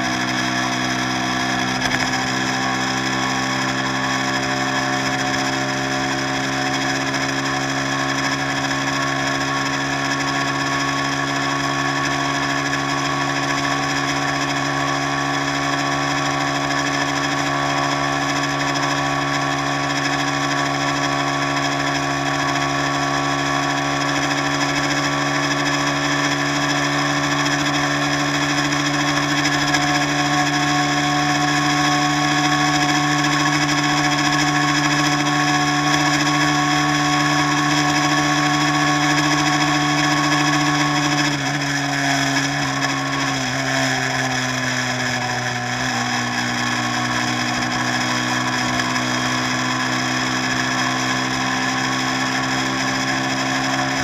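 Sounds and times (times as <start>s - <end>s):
boat engine humming: 0.0s - 34.0s.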